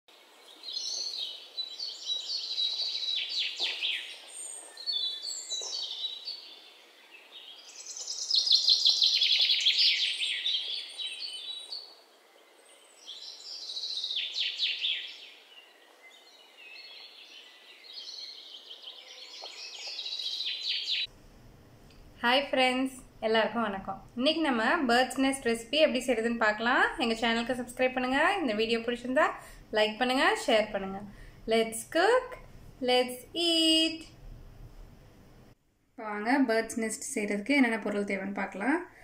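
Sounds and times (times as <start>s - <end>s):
bird chirping trills: 0.1s - 21.1s.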